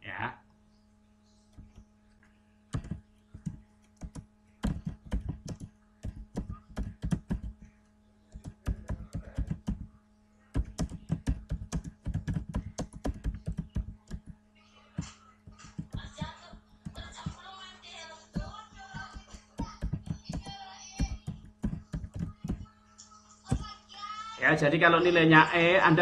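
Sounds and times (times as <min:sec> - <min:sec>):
faint steady hum: 0:00.0 - 0:26.0
keyboard typing clicks: 0:02.7 - 0:07.7, 0:08.3 - 0:09.9, 0:10.5 - 0:14.4, 0:15.0 - 0:17.4, 0:18.3 - 0:22.7.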